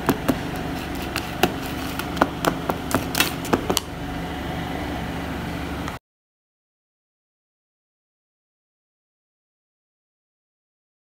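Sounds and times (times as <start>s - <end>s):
plastic spoon stirring in pot: 0.0s - 3.9s.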